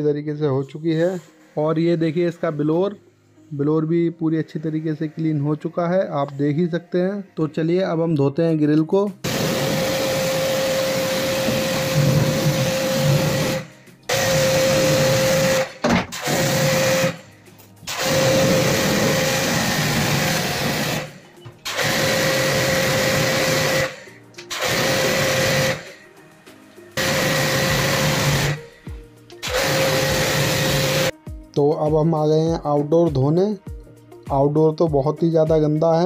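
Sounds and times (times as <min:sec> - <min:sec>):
pressure washer pump whine: 0:09.2 - 0:17.3, 0:17.9 - 0:26.0, 0:27.0 - 0:31.1.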